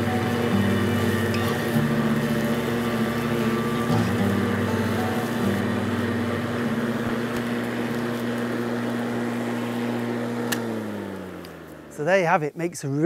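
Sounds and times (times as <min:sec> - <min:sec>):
electric lawnmower humming: 0:00.0 - 0:12.2
click: 0:10.5 - 0:10.7, 0:11.4 - 0:11.6.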